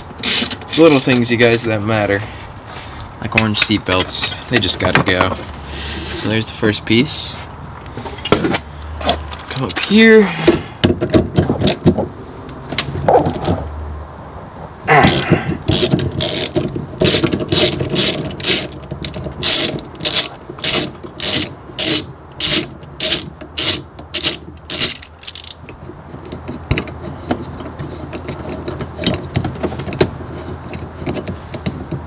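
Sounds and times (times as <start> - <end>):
handling of bolt and trim: 0.0 - 1.9, 7.8 - 13.7, 15.0 - 32.0
ratchet wrench clicking: 15.1 - 25.6.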